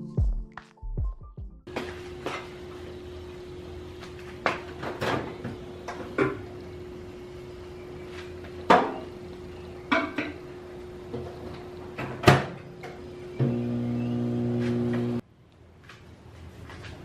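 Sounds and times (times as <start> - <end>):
steady hum: 1.7 - 15.2.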